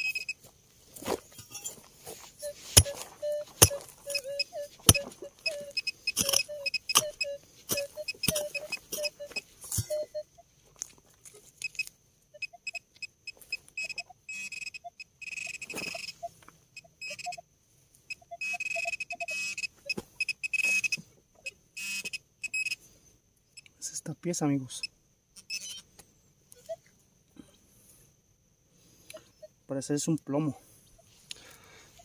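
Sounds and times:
metal detector short beeps: 0.0 - 0.4, 1.0 - 10.5, 11.6 - 17.4, 18.1 - 22.8, 24.8 - 25.9, 29.1 - 29.6
metal detector whistling tones: 0.0 - 0.4, 1.1 - 10.5, 11.6 - 17.4, 18.1 - 22.8
digging in soil: 0.0 - 11.9.

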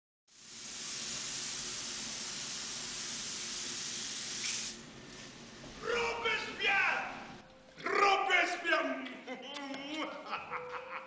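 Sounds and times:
spray gun hissing: 0.3 - 5.6.

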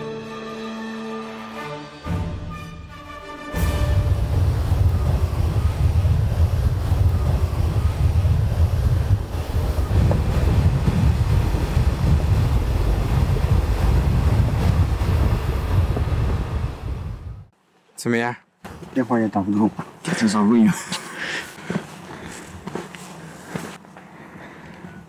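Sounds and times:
wind buffeting microphone: 3.9 - 17.5.

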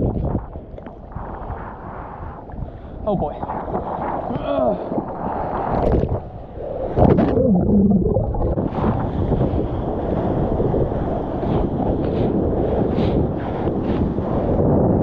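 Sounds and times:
wind buffeting microphone: 0.0 - 15.0
water rushing and splashing: 4.8 - 11.3.

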